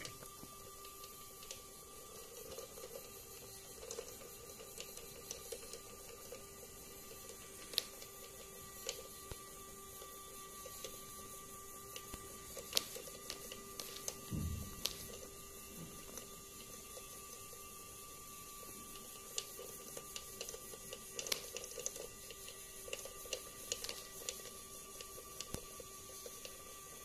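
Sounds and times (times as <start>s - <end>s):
small electric motor whining: 0.0s - 27.0s.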